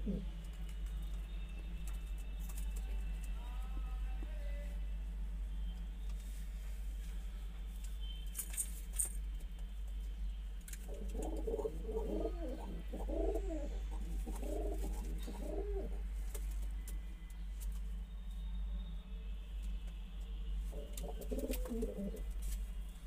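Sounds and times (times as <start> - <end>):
pigeons cooing: 0.0 - 0.5, 10.9 - 16.0, 20.7 - 22.4
steady low hum: 0.0 - 23.0.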